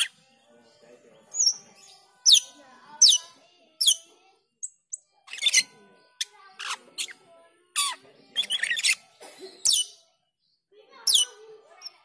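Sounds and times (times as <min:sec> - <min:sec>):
starling calling: 0:07.8 - 0:09.0.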